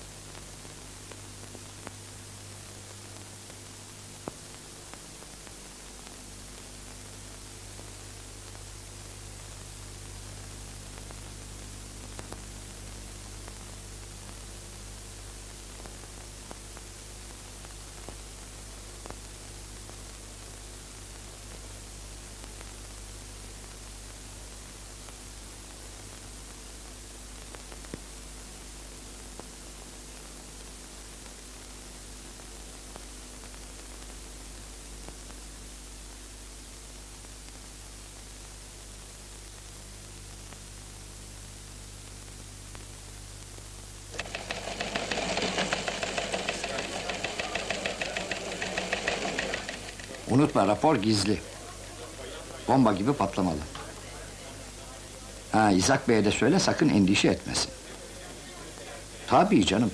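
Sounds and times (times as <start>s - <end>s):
low electrical hum: 0.0s - 59.9s
steady hiss: 0.0s - 59.9s
faint clicks: 12.0s - 12.5s.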